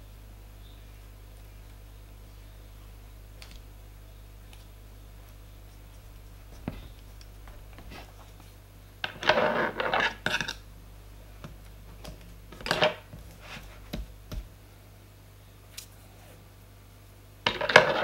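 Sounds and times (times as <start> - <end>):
rustling and scraping: 5.6 - 10.6, 11.9 - 14.5, 17.5 - 18.0.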